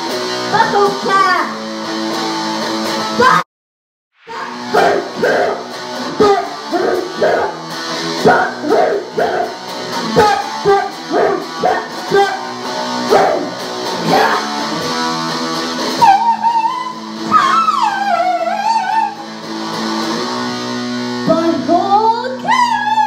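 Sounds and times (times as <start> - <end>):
guitar strummed: 0.0 - 3.4, 4.3 - 23.0
person singing into microphone: 21.2 - 23.0.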